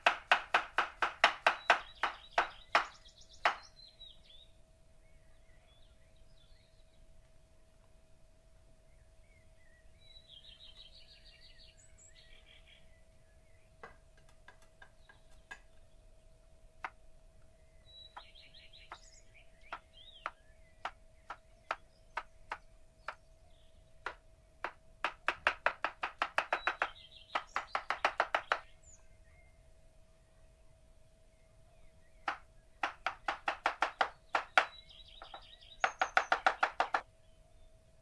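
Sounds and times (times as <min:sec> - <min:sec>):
knife chopping on wooden board: 0:00.0 - 0:03.6, 0:24.0 - 0:28.6, 0:32.3 - 0:37.0
birds chirping: 0:00.0 - 0:07.8, 0:08.8 - 0:38.0.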